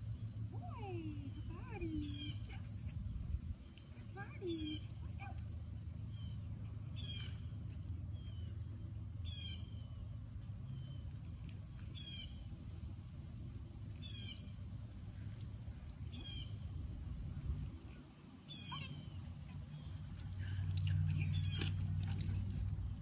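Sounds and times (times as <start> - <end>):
steady low rumble: 0.0 - 23.0.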